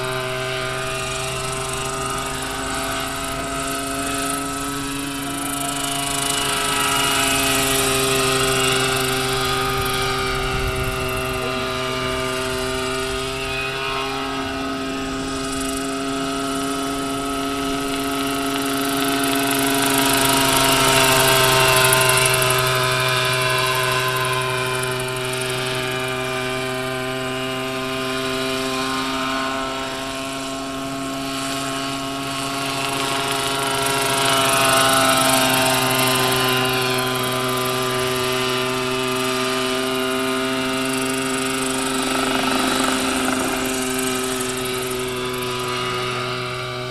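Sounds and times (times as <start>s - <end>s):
model helicopter rotor drone: 0.0s - 46.9s.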